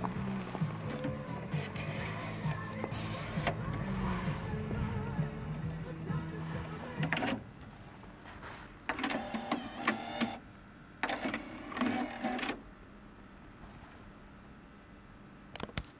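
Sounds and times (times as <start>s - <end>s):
cassette deck mechanism whirring: 0.0s - 7.7s, 8.8s - 10.4s, 11.0s - 12.7s.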